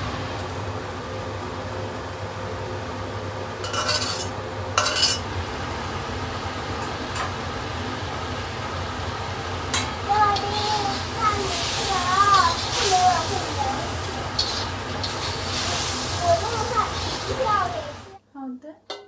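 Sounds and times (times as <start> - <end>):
steady kitchen hum: 0.0 - 19.0
metal spatula scraping wok: 3.6 - 5.2, 14.3 - 16.1.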